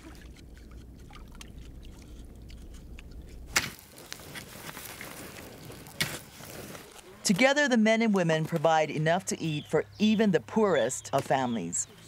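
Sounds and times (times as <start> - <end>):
wood fire crackling: 3.1 - 7.4
sharp crack: 3.5 - 4.5.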